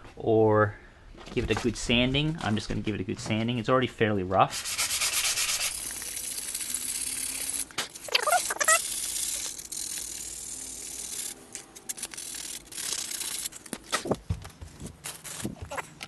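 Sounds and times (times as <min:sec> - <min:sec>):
sandpaper rasping on plastic: 0:04.5 - 0:13.7
short squeak: 0:08.0 - 0:09.6.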